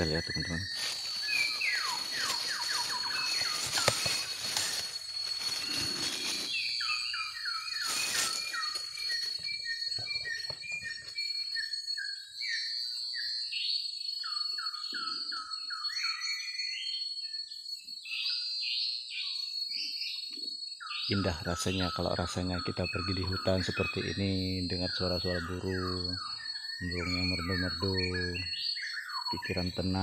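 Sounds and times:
high insect drone: 0:00.0 - 0:30.0
rustling: 0:00.6 - 0:06.8.

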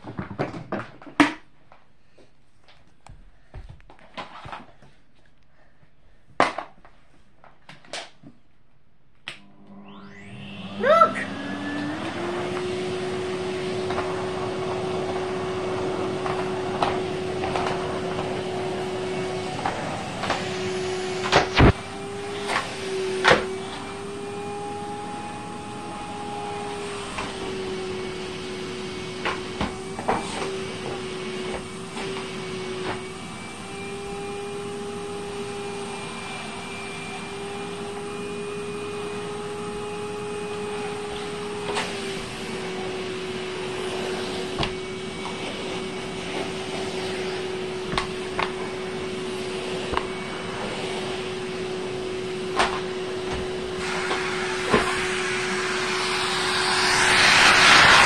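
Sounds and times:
vacuum cleaner motor whine: 0:09.4 - 0:58.0
rushing suction noise: 0:09.9 - 0:24.4, 0:53.0 - 0:58.0.

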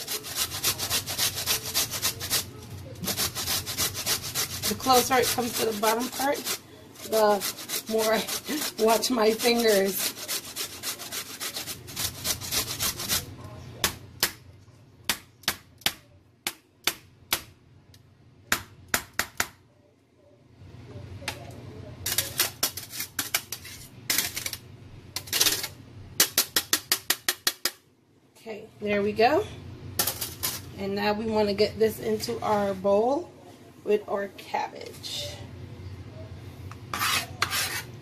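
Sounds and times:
carrot rasping on box grater: 0:00.0 - 0:13.3, 0:36.9 - 0:37.9.

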